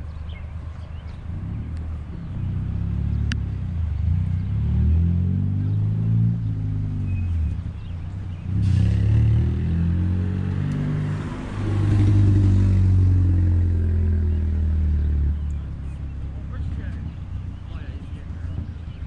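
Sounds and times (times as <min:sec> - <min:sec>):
tractor engines idling: 0:14.5 - 0:19.0.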